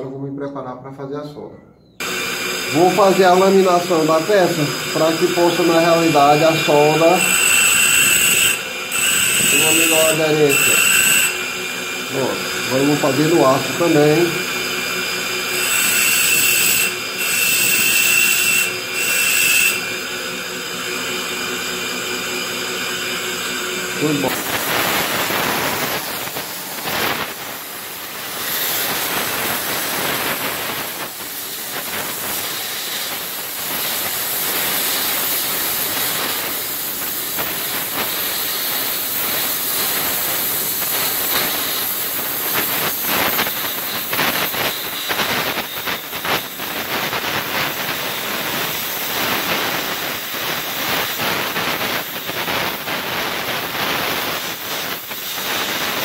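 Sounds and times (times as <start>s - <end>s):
welding torch hissing: 2.0s - 56.0s
crackling of melting metal: 24.0s - 56.0s.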